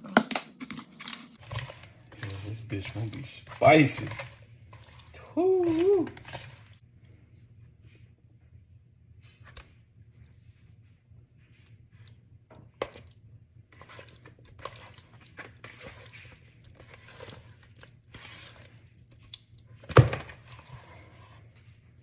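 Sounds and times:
hand squelching wet fish chunks: 0:01.4 - 0:06.8, 0:11.6 - 0:21.4.

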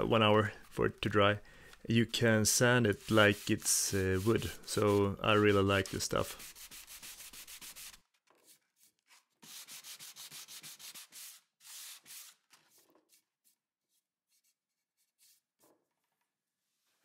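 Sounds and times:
sanding block rasping on wood: 0:02.8 - 0:08.0, 0:09.4 - 0:12.3.

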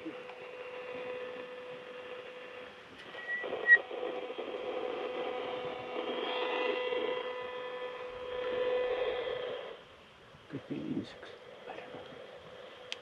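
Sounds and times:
bat detector whistling tone: 0:03.1 - 0:03.9.

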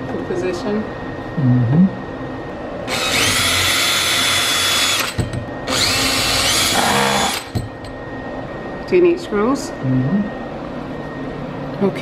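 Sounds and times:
cordless drill motor whine: 0:02.9 - 0:07.6.

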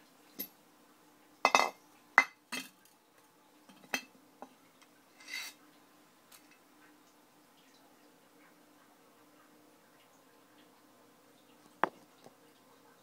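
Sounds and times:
metal scraping on tile floor: 0:05.2 - 0:05.6.

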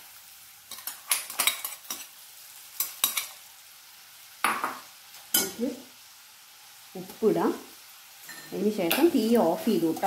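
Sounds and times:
faint sizzle of frying: 0:00.0 - 0:10.0.

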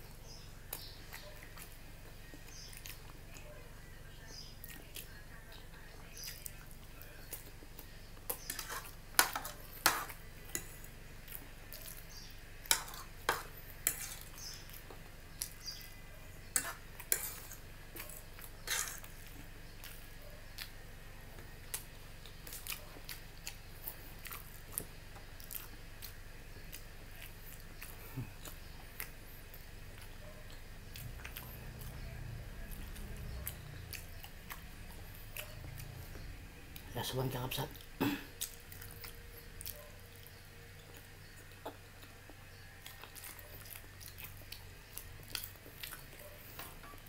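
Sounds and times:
chewing: 0:00.0 - 0:47.0
fork clinking and scraping on plate: 0:08.4 - 0:10.9, 0:12.7 - 0:14.6, 0:16.5 - 0:17.6, 0:18.6 - 0:19.2.

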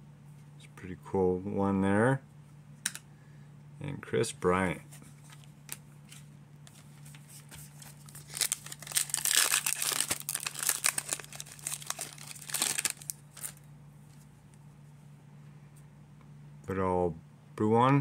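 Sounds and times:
handling of cards: 0:04.8 - 0:14.7
plastic wrapper tearing and crinkling: 0:07.8 - 0:13.6.

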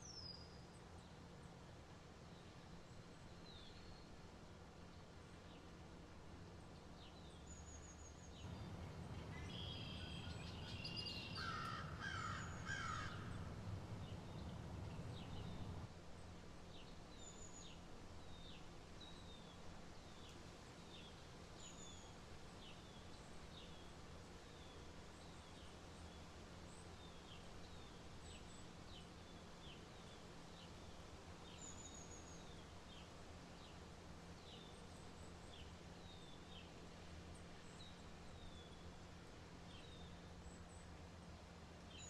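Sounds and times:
background noise: 0:00.0 - 0:42.0
bird calls: 0:08.5 - 0:15.8.

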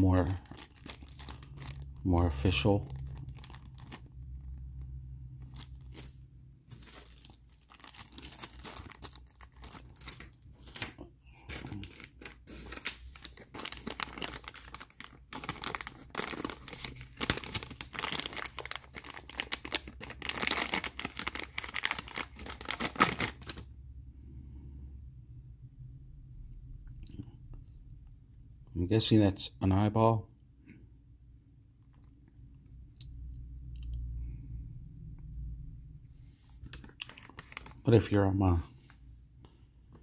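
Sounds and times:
plastic bag crinkling and tearing: 0:00.0 - 0:23.7, 0:36.6 - 0:38.2.

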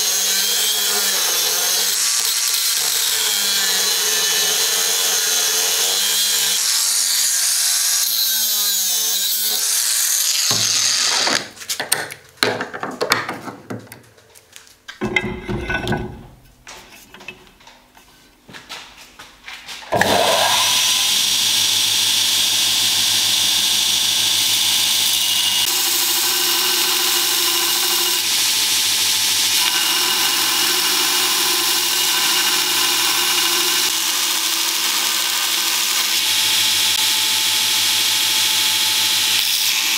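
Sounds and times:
cut-off saw cutting steel: 0:00.0 - 0:11.4, 0:20.0 - 0:39.9
belt grinder grinding steel: 0:00.0 - 0:11.5, 0:20.0 - 0:39.9.

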